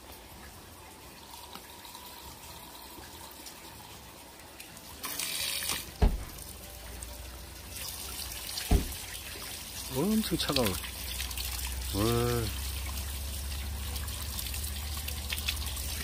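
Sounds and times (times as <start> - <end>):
water stream on wet stone: 0.0 - 16.0
plastic bottle filling: 4.9 - 6.5
bottle thump: 6.0 - 6.4, 8.7 - 9.0.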